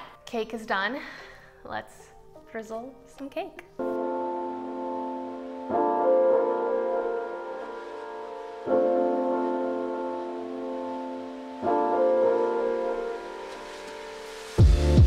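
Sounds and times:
sustained piano chords: 3.7 - 15.0.

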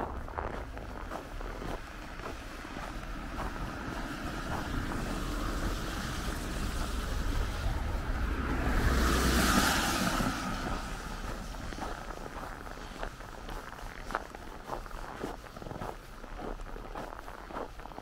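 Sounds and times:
traffic hum: 0.0 - 18.0
vehicle passing by: 0.1 - 16.0.

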